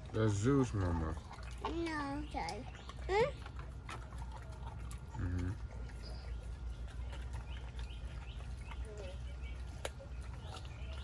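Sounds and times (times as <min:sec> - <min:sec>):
dog grunting: 0:05.0 - 0:05.9.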